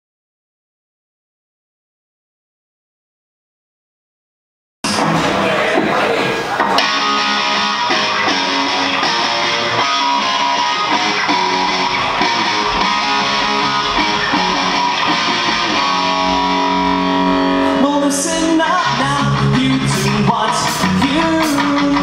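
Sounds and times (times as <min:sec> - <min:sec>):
drum kit: 0:04.8 - 0:17.4, 0:18.1 - 0:22.0
bass guitar: 0:04.8 - 0:22.0
electric guitar: 0:06.5 - 0:22.0.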